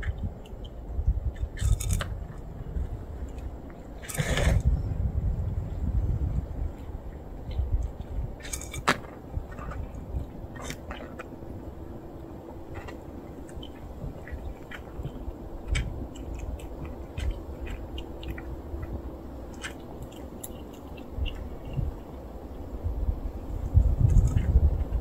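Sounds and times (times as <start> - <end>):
low background hum: 0.0 - 25.0
cats crunching dry kibble: 1.5 - 4.6, 6.7 - 22.4.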